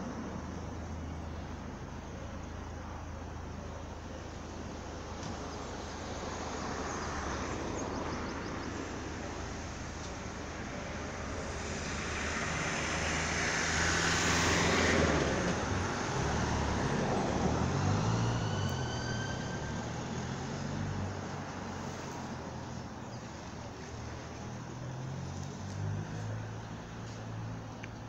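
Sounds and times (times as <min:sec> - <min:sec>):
vehicle passing by: 0:05.7 - 0:28.0.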